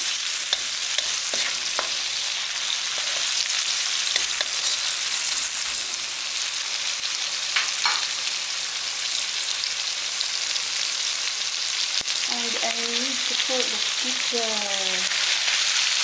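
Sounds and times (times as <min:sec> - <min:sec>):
spatula scraping a wok: 0:00.0 - 0:05.7
food sizzling in oil: 0:00.0 - 0:16.0.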